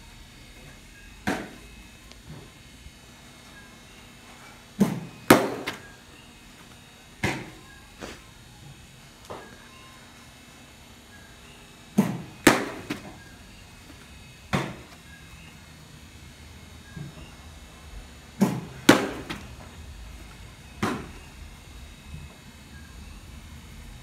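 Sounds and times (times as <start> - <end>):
baseball popping into mitt: 4.8 - 5.8, 12.0 - 13.1, 18.4 - 19.5.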